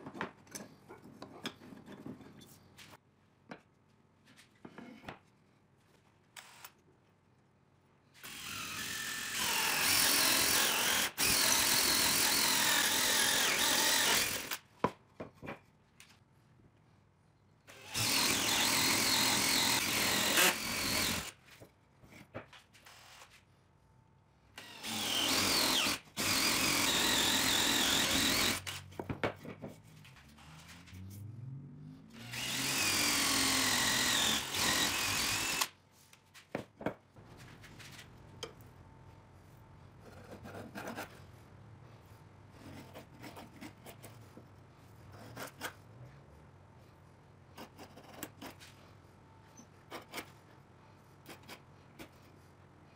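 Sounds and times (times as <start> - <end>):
cordless drill boring wood: 8.2 - 14.6, 17.7 - 21.3, 24.6 - 28.8, 32.2 - 35.7.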